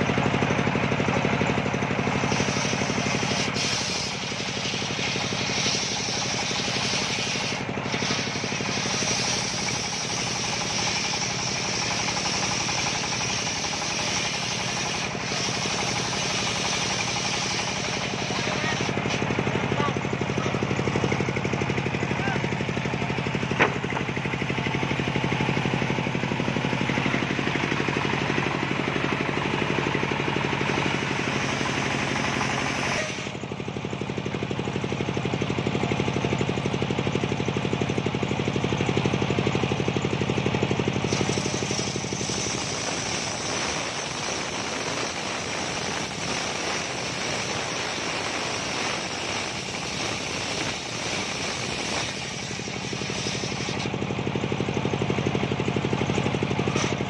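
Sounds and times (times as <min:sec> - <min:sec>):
engine drone: 0:00.0 - 0:57.0
circular saw blade ripping timber: 0:02.2 - 0:19.3, 0:41.0 - 0:54.0, 0:56.6 - 0:57.0.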